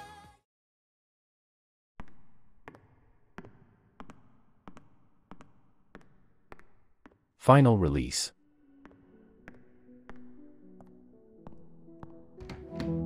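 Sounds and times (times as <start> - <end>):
echoing footsteps on hard floor: 8.8 - 12.9.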